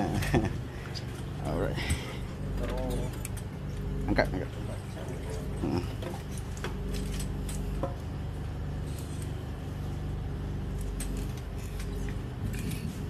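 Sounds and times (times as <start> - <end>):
drain-jetting machine engine drone: 0.0 - 13.0.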